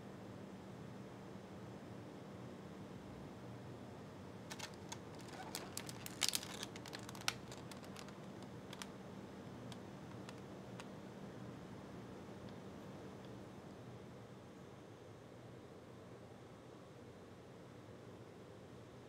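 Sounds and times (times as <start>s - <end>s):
low steady hum: 1.1s - 19.0s
plastic packaging crackling: 4.5s - 9.0s, 9.6s - 10.9s.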